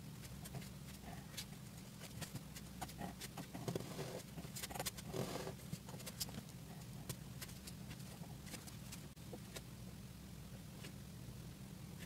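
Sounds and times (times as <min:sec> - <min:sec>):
pen scratching on paper: 0:00.2 - 0:06.4.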